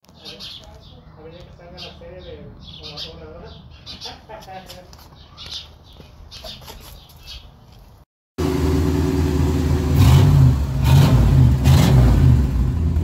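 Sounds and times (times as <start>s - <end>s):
engine revving: 8.4s - 13.0s.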